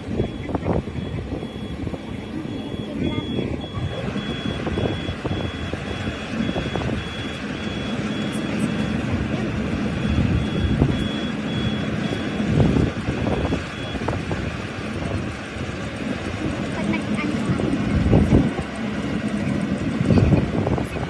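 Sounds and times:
electronic warning beeper: 0.0 - 14.1
harvester engine rumble: 0.0 - 21.0.

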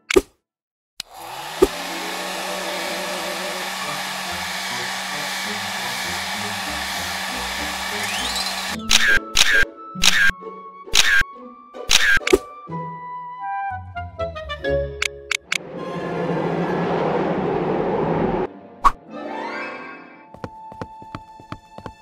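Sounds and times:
hair dryer blowing: 1.0 - 8.8.

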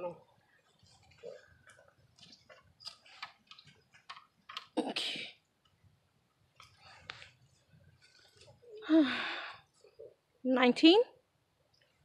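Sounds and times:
handling clicks and rustles: 0.6 - 4.8.

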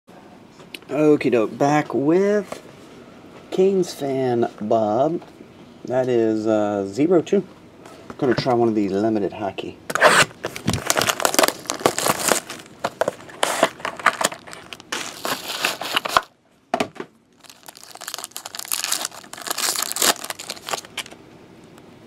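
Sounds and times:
plastic shrink-wrap tearing: 10.1 - 16.3, 17.4 - 21.2
plastic wrapper crinkling: 10.4 - 16.3, 17.3 - 21.2.

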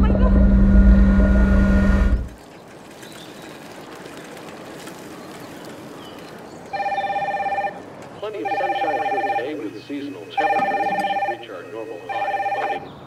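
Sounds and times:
low vehicle rumble: 0.0 - 2.4
faint outdoor ambience: 0.0 - 13.0
telephone ringing: 6.7 - 12.9.

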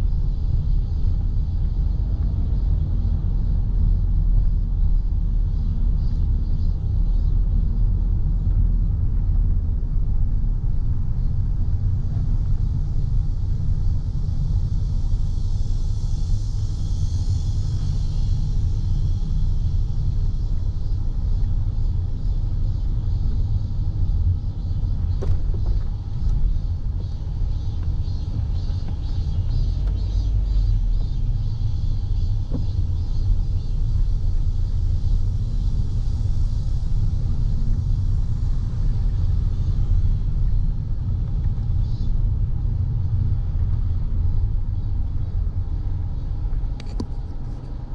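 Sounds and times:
car road rumble from inside: 0.0 - 47.9
cicadas buzzing: 14.3 - 46.8.

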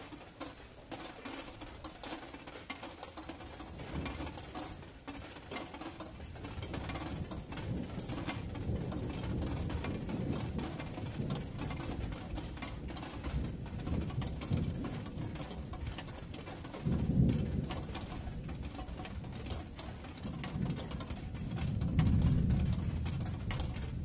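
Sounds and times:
rain pattering: 0.0 - 24.0
distant thunder rumbling: 6.5 - 24.0.

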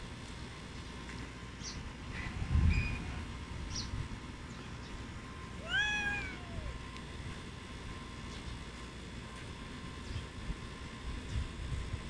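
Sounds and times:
cat meowing: 5.6 - 6.8.

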